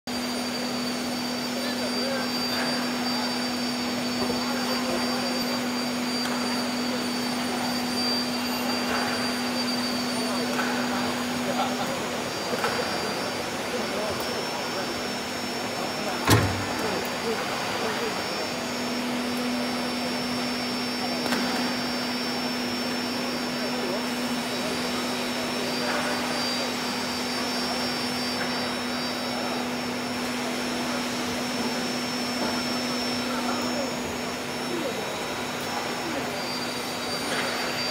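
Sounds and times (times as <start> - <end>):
faint high whine: 0.1 - 37.9
machine mechanical hum: 0.1 - 37.9.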